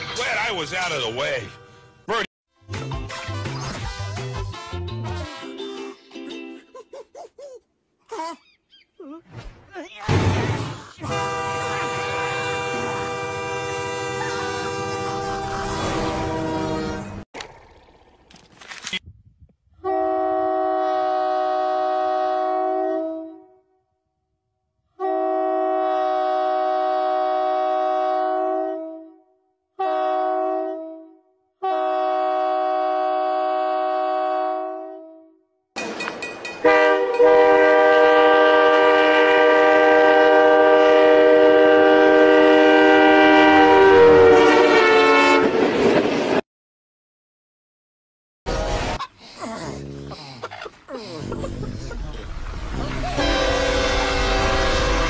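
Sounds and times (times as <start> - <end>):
locomotive air horn blasts: 4.5 - 5.6, 11.0 - 17.2, 19.8 - 23.8, 24.9 - 35.4, 36.6 - 45.7, 53.1 - 55.0
train rumbling and clattering by: 45.0 - 46.4.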